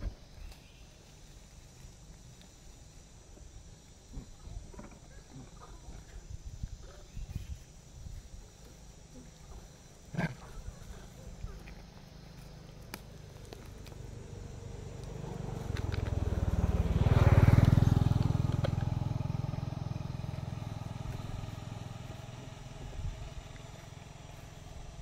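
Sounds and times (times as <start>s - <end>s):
vehicle engine passing by: 12.1s - 25.0s.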